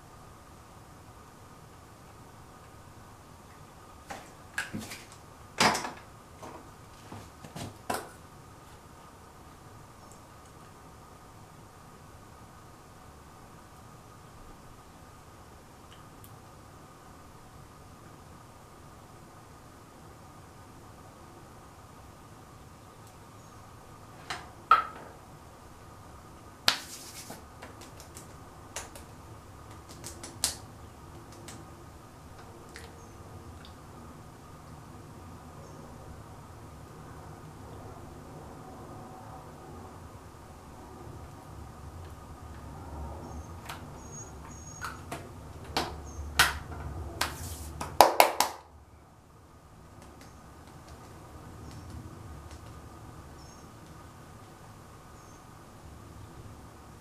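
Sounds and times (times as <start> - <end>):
hissing rub: 26.7 - 27.4, 47.3 - 47.8.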